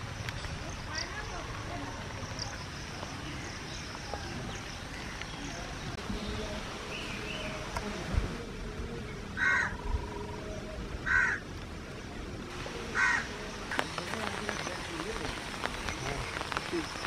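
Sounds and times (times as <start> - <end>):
bird calling harshly: 12.9 - 13.9.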